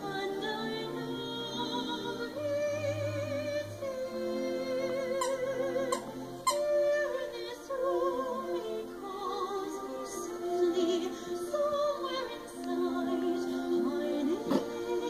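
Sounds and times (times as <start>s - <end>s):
operatic singing: 0.0s - 15.0s.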